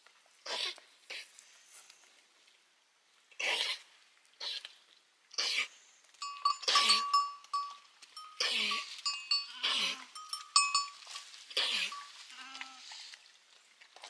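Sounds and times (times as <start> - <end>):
high ringing tone: 6.2 - 11.3
sheep and goats bleating: 6.2 - 13.1.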